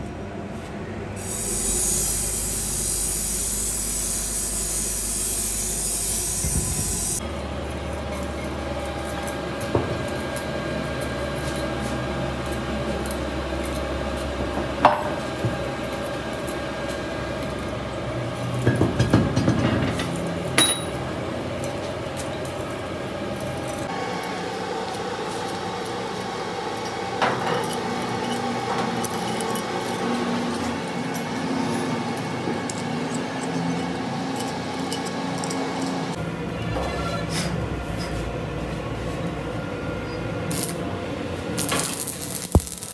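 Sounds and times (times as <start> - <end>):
steady hum: 0.0 - 7.6.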